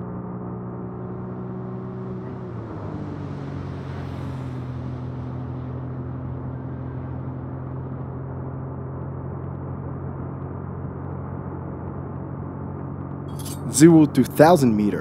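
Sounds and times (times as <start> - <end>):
car engine droning at speed: 0.0 - 15.0
wind and road noise: 0.0 - 15.0.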